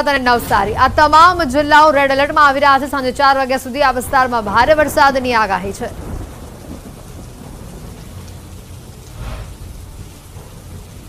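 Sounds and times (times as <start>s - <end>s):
heavy rain: 0.0s - 11.0s
thunder rumbling: 0.0s - 11.0s.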